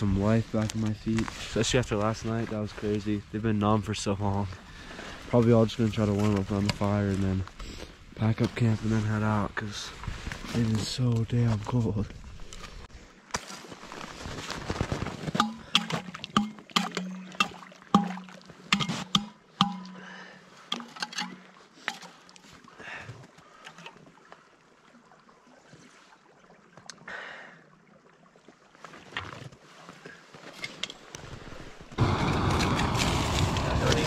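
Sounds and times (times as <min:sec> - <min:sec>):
water sloshing and gurgling: 0:12.1 - 0:32.0
sharp knocks and splashes: 0:15.2 - 0:22.7.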